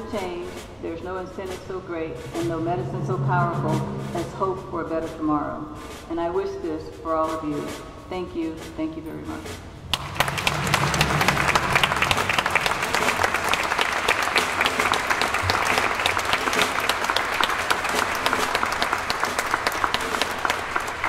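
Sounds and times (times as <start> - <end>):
audience applauding: 9.9 - 21.0.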